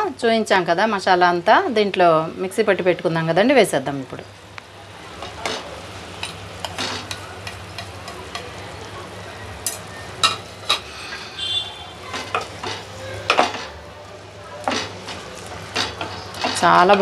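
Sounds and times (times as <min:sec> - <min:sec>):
chicken sizzling in hot oil: 0:04.6 - 0:16.6
spoon scraping a plate: 0:09.6 - 0:13.8.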